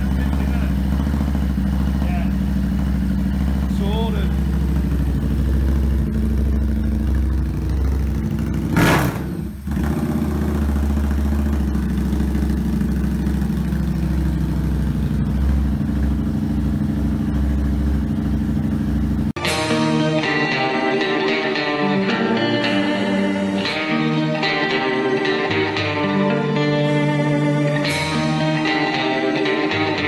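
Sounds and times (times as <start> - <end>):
motorcycle engine idling: 0.0 - 19.4
guitar music: 19.4 - 30.0.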